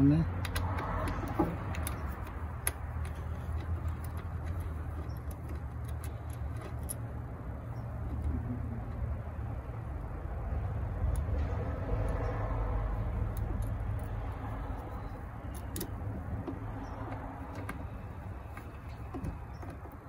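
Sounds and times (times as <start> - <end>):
small metallic clicks: 0.4 - 8.4, 13.1 - 20.0.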